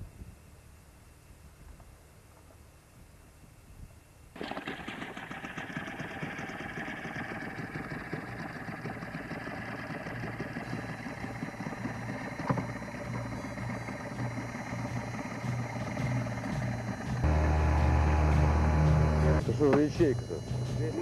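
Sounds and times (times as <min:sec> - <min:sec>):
outboard motor running: 0:04.4 - 0:21.0.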